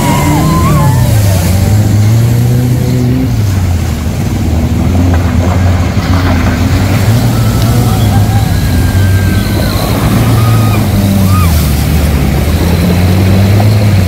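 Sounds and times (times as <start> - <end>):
vehicle engine running: 0.0 - 14.0.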